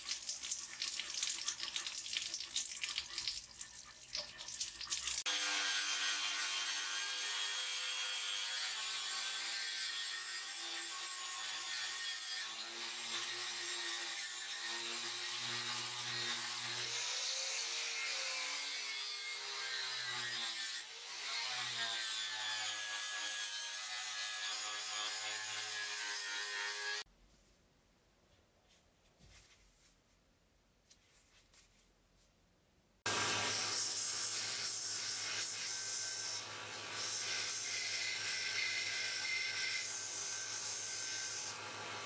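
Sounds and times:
angle grinder on metal: 5.2s - 27.0s, 33.1s - 42.0s.

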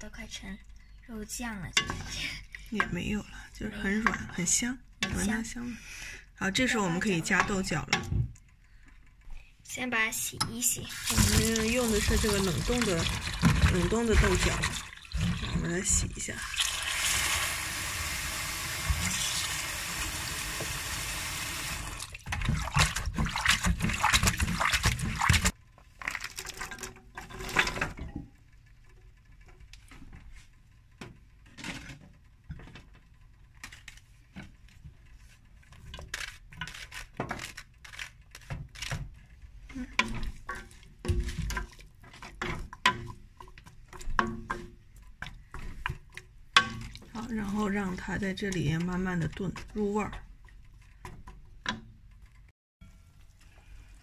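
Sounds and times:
spatula stirring in steel pot: 1.7s - 5.6s, 6.5s - 8.1s, 10.1s - 16.4s, 22.2s - 25.6s, 34.4s - 52.3s
tap water running: 10.7s - 25.6s.

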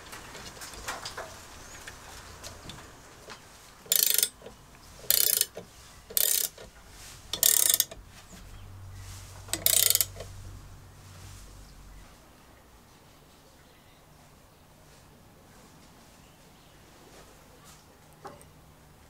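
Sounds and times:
ratcheting wrench clicking: 3.9s - 6.7s, 7.3s - 8.0s, 9.5s - 10.3s.

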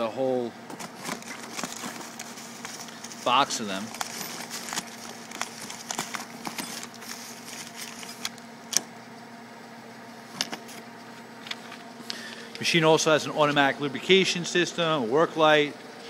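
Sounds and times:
low machine hum: 0.0s - 16.0s
metal tool holders clinking: 0.8s - 7.0s
plastic wrapping rustling: 0.8s - 8.3s.

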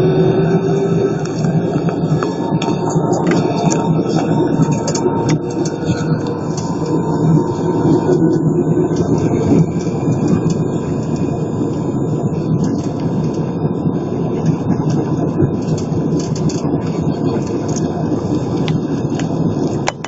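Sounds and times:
faint steady engine whine: 0.0s - 20.0s
jet engines loud rumble: 0.0s - 20.0s.

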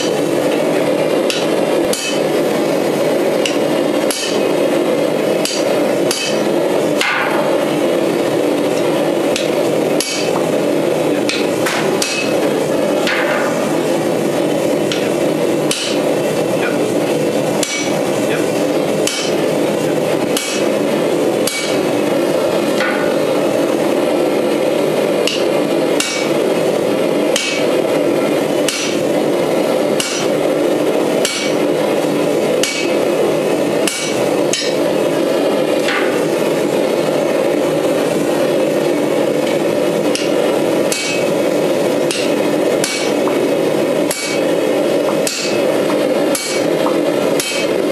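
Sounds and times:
gas forge burner roar: 0.0s - 47.9s
hammer striking punch on anvil: 1.3s - 2.3s, 3.4s - 4.4s, 5.4s - 6.4s, 7.0s - 7.5s, 11.3s - 12.4s, 13.0s - 13.6s, 15.7s - 16.0s, 17.6s - 17.9s, 19.0s - 19.4s, 20.4s - 20.6s, 21.4s - 21.8s, 22.8s - 23.2s, 25.2s - 26.3s, 27.4s - 27.7s, 28.6s - 29.0s, 30.0s - 30.3s, 31.2s - 31.6s, 32.6s - 33.0s, 33.9s - 34.8s, 35.9s - 36.2s, 40.1s - 41.3s, 42.1s - 43.2s, 44.1s - 44.4s, 45.2s - 45.6s, 46.4s - 46.6s, 47.4s - 47.7s.

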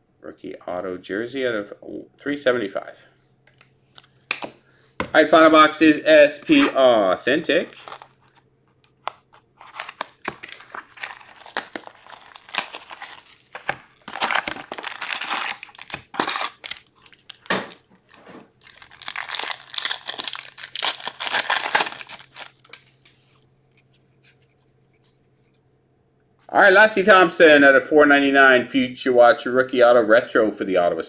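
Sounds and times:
foil card packs crinkling: 7.4s - 24.6s
foil pack torn open: 7.7s - 8.4s, 9.0s - 17.8s, 18.6s - 22.8s.

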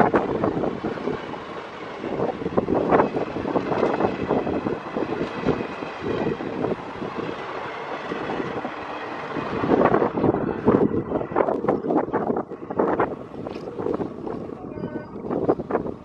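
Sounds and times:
train wheels clattering on track: 0.0s - 10.2s
train rumble: 0.0s - 16.0s.

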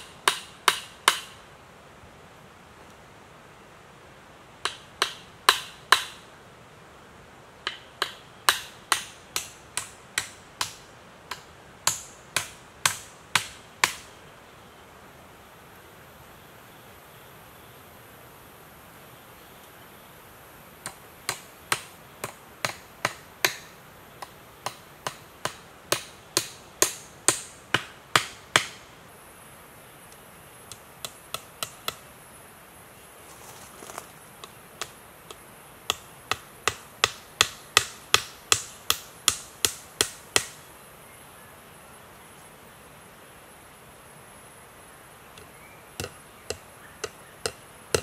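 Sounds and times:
hand tool striking wood: 0.2s - 1.4s, 4.6s - 6.2s, 7.6s - 14.0s, 20.9s - 28.8s, 30.7s - 32.0s, 34.4s - 40.6s, 45.4s - 48.0s.

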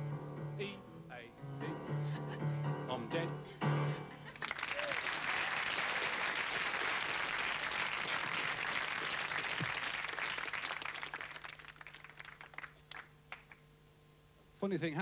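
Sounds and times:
audience applauding: 4.3s - 13.6s.

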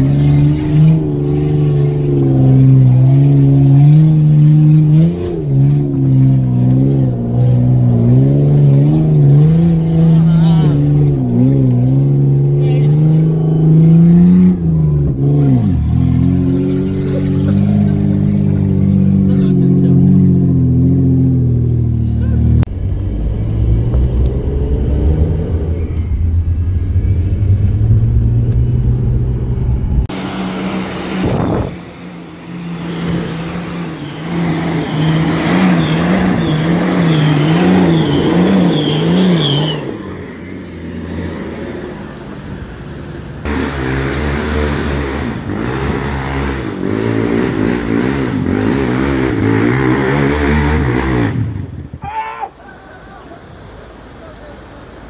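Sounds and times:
quad bike engine revving: 0.0s - 42.5s, 43.4s - 52.0s
vehicle engine revving: 0.0s - 52.0s
off-road vehicle engine driving: 0.0s - 55.0s.

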